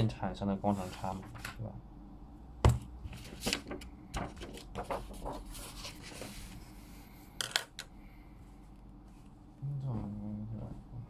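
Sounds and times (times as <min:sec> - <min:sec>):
paper rustling: 0:03.1 - 0:06.6.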